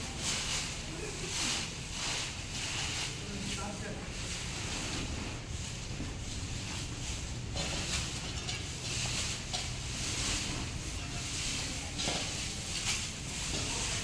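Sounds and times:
brooms sweeping dry leaves: 0:00.0 - 0:14.0.

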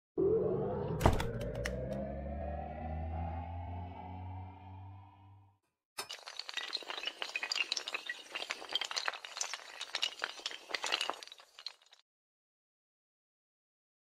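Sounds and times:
small tiles clattering: 0:06.0 - 0:12.0.

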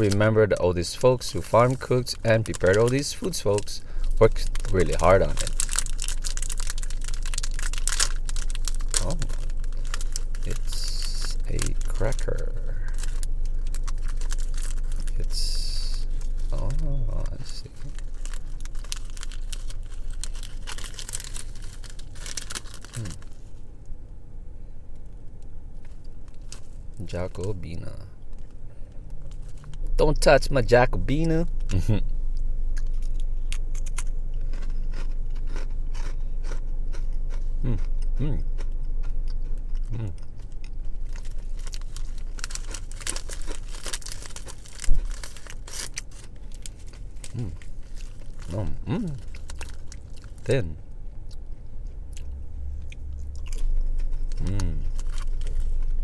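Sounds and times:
plastic wrapper crackling: 0:01.0 - 0:23.5, 0:41.0 - 0:48.6, 0:49.2 - 0:50.6, 0:53.3 - 0:56.0.

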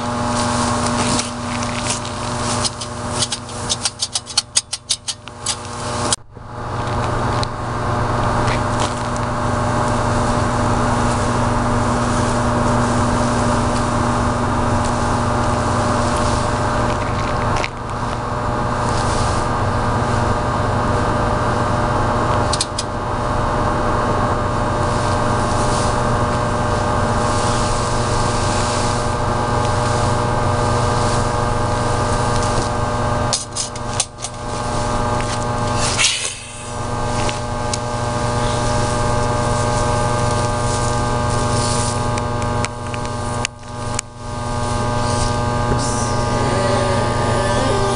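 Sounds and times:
droning hum of held tones: 0:00.0 - 0:47.9
high-pitched rising sweep: 0:45.7 - 0:47.9.

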